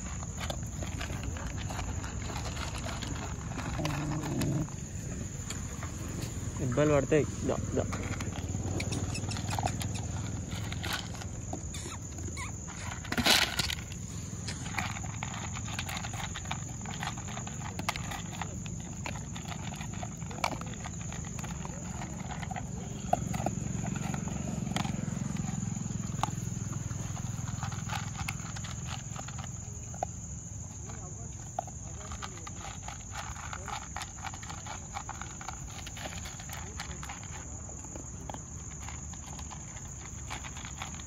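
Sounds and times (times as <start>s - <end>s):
dogs crunching dry kibble: 0.0s - 41.0s.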